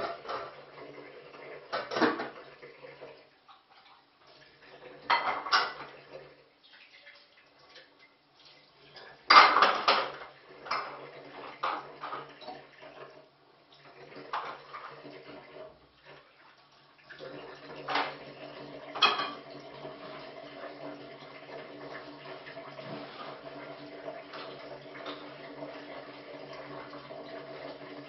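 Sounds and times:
dishes clattering in a sink: 0:00.0 - 0:00.8, 0:01.6 - 0:02.6, 0:04.9 - 0:06.3, 0:08.9 - 0:12.7, 0:14.0 - 0:15.8, 0:17.2 - 0:21.0, 0:21.9 - 0:27.8.

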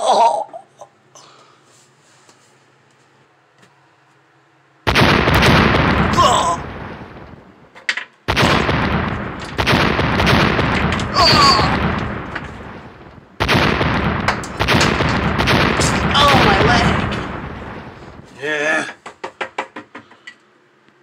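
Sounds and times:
rapid gunfire: 0:04.9 - 0:07.5, 0:08.3 - 0:18.3.

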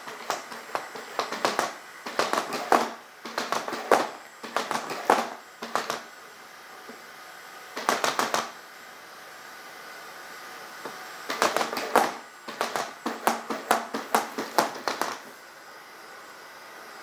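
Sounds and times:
robot feet tapping on wooden floor: 0:00.1 - 0:06.1, 0:07.8 - 0:08.5, 0:11.3 - 0:15.2.

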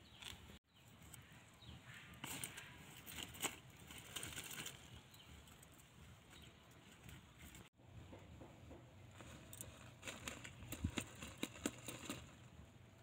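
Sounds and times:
leaves rustling and crackling: 0:02.2 - 0:07.7, 0:09.1 - 0:12.5.

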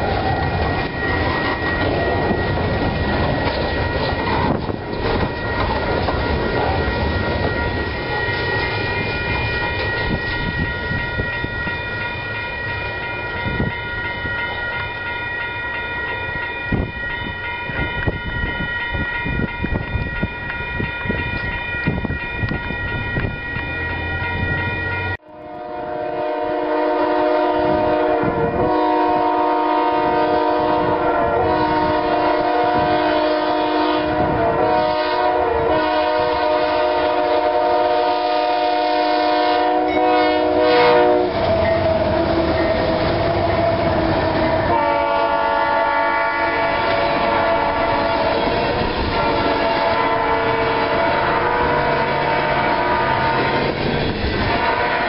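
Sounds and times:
freight train wheels clicking: 0:00.0 - 0:25.2, 0:36.2 - 0:55.0
train rumble: 0:00.0 - 0:55.0
locomotive air horn: 0:25.2 - 0:53.7, 0:54.4 - 0:55.0.

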